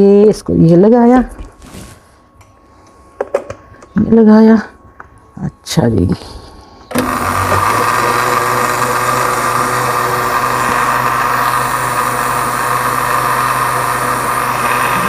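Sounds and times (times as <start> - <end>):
blender motor running: 6.9 - 15.0.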